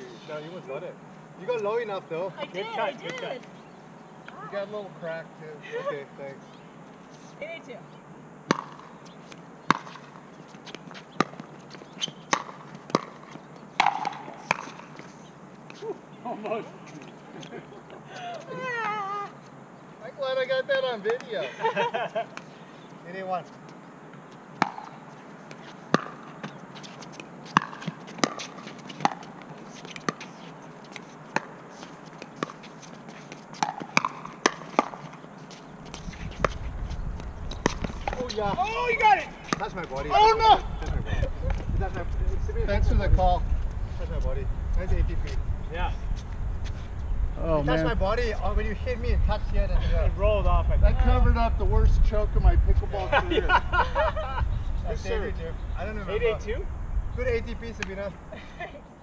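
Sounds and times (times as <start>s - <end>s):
paddles hitting plastic ball: 12.3s - 15.1s.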